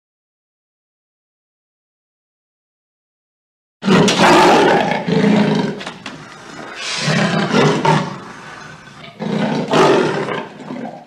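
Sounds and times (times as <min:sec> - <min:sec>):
big cat roaring: 0:03.8 - 0:11.0.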